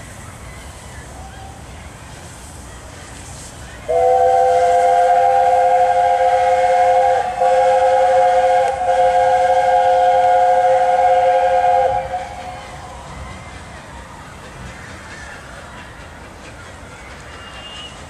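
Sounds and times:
steam locomotive chime whistle: 3.9s - 12.9s, 17.2s - 18.0s.

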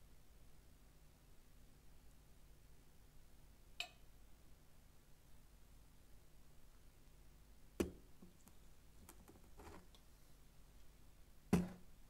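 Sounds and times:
faint clicks and taps: 7.8s - 10.1s.

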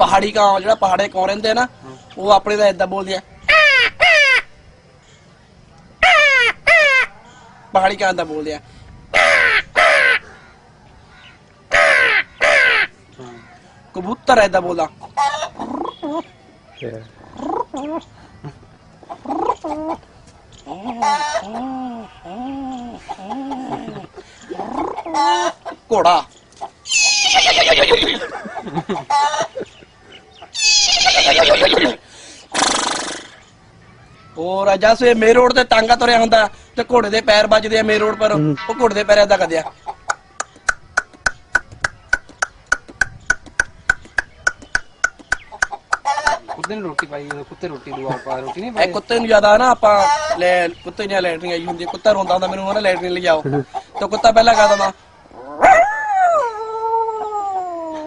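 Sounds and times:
man imitating pigeon cooing: 20.7s - 25.6s, 55.4s - 58.0s
tongue clicks: 40.1s - 47.4s.

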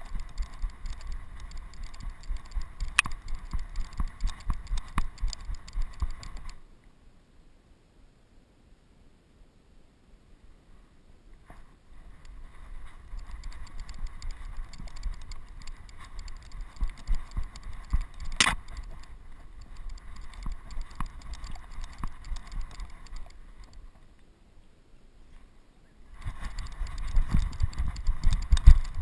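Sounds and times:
sharp click: 0.0s - 6.6s, 13.0s - 23.8s, 26.2s - 29.0s.

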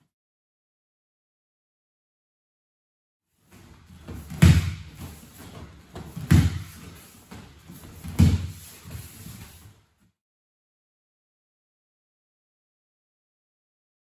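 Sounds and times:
bare feet shuffling: 3.5s - 9.8s
heavy thuds on a mat: 4.1s - 5.1s, 5.9s - 6.9s.

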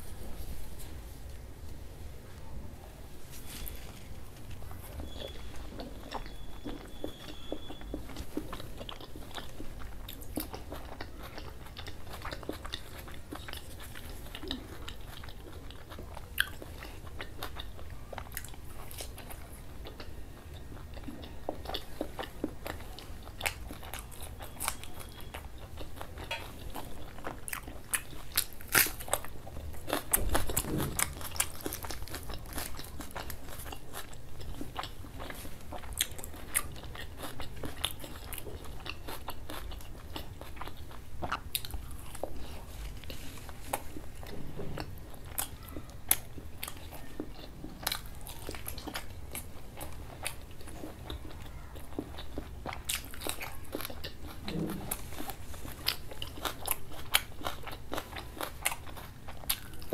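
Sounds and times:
man chewing food: 3.2s - 59.9s
low thud: 30.2s - 31.4s.

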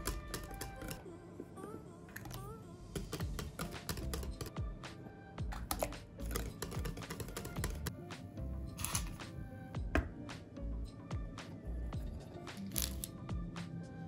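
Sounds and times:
background music: 0.0s - 14.0s
whisk clicking against glass bowl: 5.7s - 7.9s.

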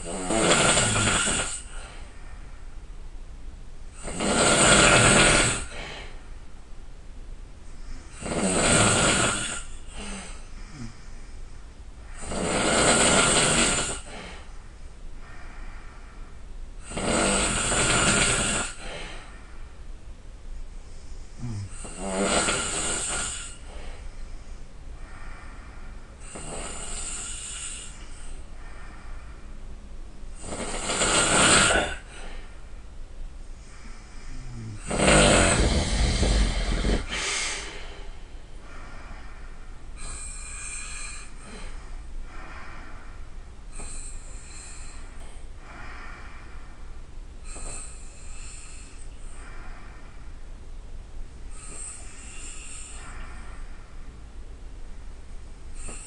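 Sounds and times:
person snoring loudly: 0.0s - 1.7s, 4.0s - 5.8s, 8.1s - 11.0s, 12.2s - 14.2s, 16.8s - 19.0s, 21.4s - 23.6s, 26.2s - 28.0s, 30.4s - 32.2s, 34.3s - 38.2s.

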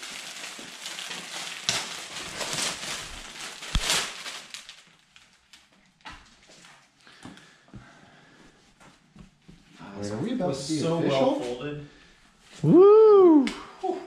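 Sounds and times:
packaging rustling and crinkling: 0.0s - 7.6s.

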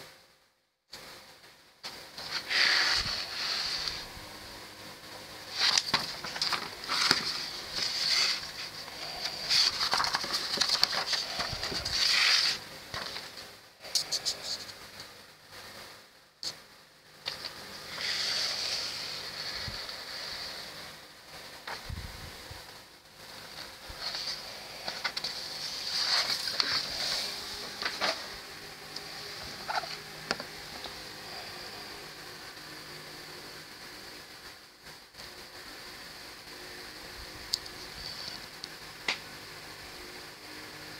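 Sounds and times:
steady high hiss: 0.0s - 40.9s
paper pages rustling: 2.2s - 4.1s, 5.4s - 14.8s, 17.2s - 20.6s, 21.6s - 21.8s, 23.5s - 28.4s, 29.3s - 31.0s
paper crisp clicks and crackles: 5.5s - 13.4s, 17.2s - 18.5s, 23.6s - 28.2s.

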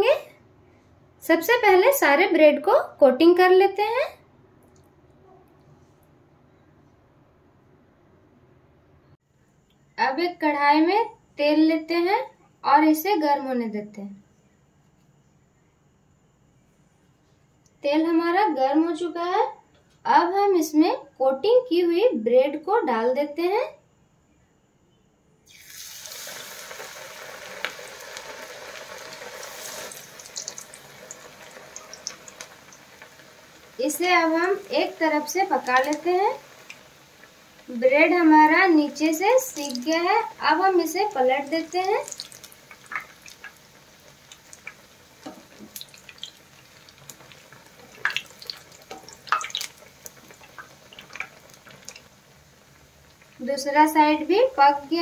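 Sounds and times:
oil crackling and popping: 25.5s - 53.4s
bread frying in hot oil sizzling: 25.5s - 55.0s.

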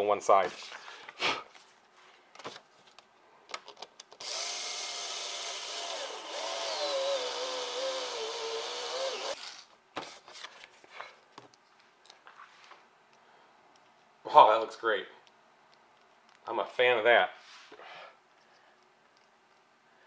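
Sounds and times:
small electric motor whine: 4.2s - 9.6s.

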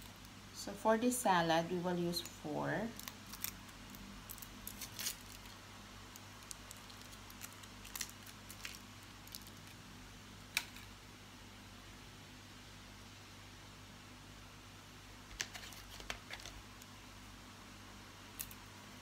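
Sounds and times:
faint steady hum: 0.0s - 19.0s
wrappers crinkling: 2.9s - 9.8s, 15.3s - 16.6s.

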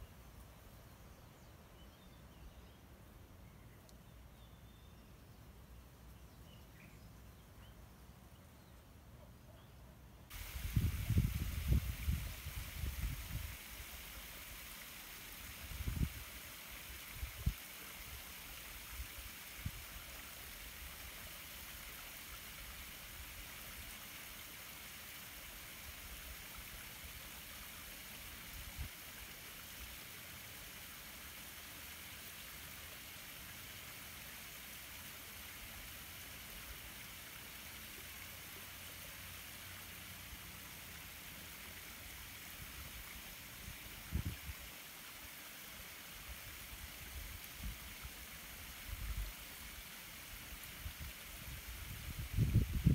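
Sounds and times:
faint outdoor hiss: 0.0s - 52.9s
wind bumps on microphone: 10.4s - 13.5s, 51.9s - 52.9s.

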